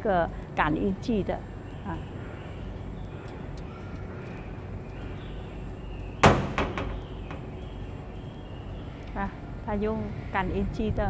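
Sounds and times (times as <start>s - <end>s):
low background hum: 0.0s - 11.0s
loud bang: 6.2s - 7.5s
quiet knocks: 6.2s - 7.6s.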